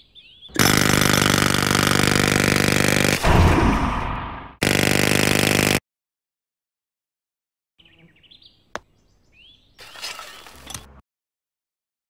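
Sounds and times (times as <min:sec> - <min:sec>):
faint birds chirping: 0:00.0 - 0:00.6, 0:07.8 - 0:10.0
jackhammer hammering: 0:00.6 - 0:03.4, 0:04.6 - 0:05.8.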